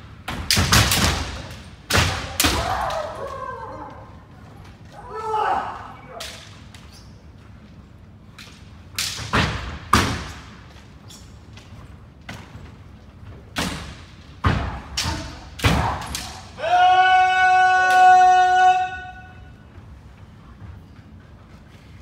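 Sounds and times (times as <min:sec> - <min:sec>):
long held shout: 0:05.0 - 0:06.2, 0:16.5 - 0:19.5.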